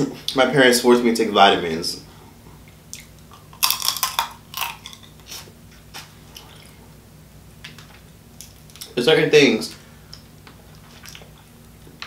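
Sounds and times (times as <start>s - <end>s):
wet chewing: 2.9s - 5.5s, 10.1s - 11.5s
crab shell crackling: 3.4s - 5.1s.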